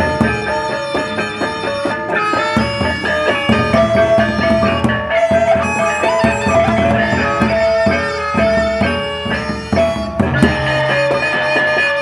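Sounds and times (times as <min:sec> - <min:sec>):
barrel drums beaten with sticks: 0:00.0 - 0:12.0
clashing hand cymbals: 0:00.0 - 0:12.0
gongs: 0:00.0 - 0:12.0
melody of long held notes: 0:00.0 - 0:12.0.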